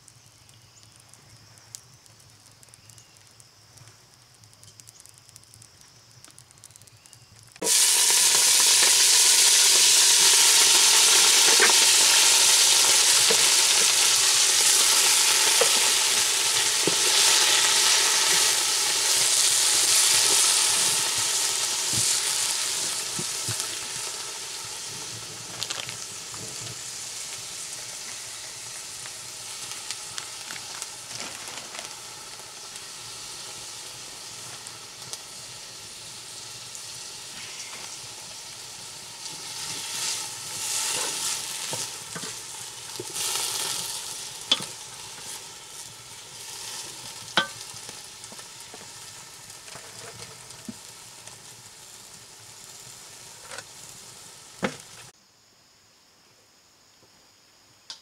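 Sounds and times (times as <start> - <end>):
sharp clicks: 0.0 - 7.6
vegetables sizzling in hot oil: 0.0 - 55.1.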